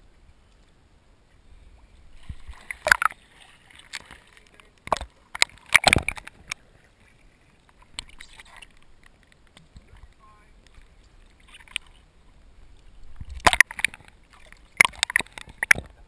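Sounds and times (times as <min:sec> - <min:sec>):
seawater sloshing and splashing: 0:02.0 - 0:16.0.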